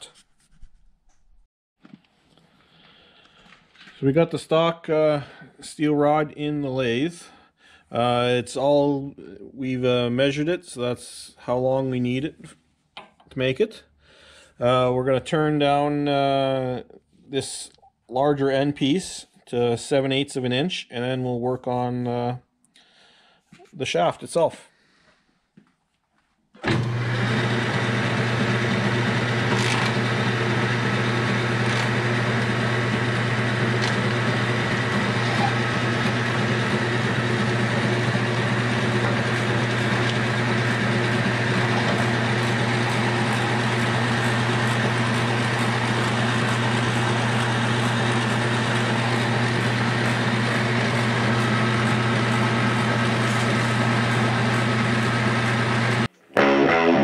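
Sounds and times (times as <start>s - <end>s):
metal lathe motor humming: 26.6s - 56.1s.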